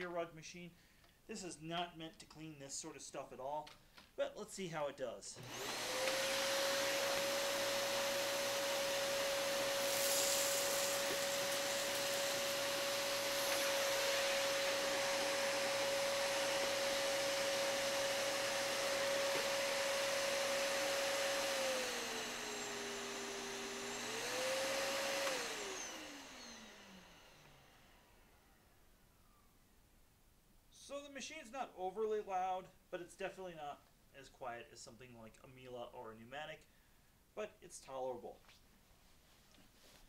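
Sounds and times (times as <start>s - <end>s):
vacuum cleaner running: 5.4s - 28.6s.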